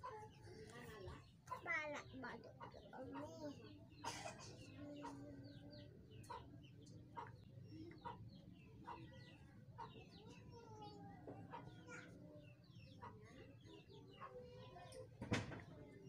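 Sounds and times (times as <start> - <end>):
chickens clucking: 0.0 - 15.9
birds chirping: 0.0 - 16.0.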